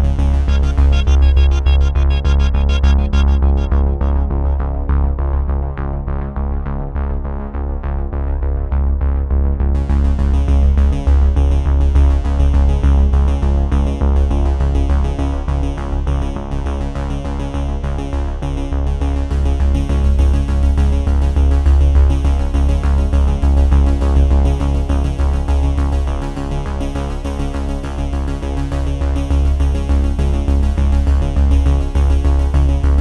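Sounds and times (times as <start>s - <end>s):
background music with pulsing bass: 0.0s - 33.0s.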